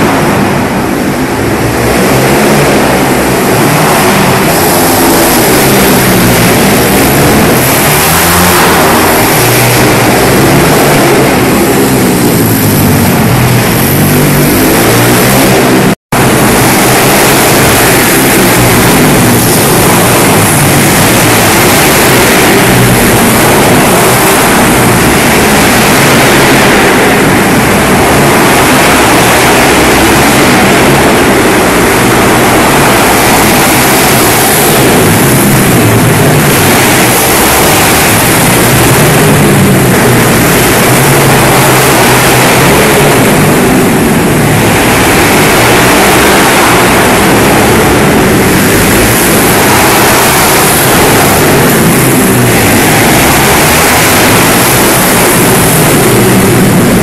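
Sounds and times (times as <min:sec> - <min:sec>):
pit bike engines racing: 0:00.0 - 0:57.0.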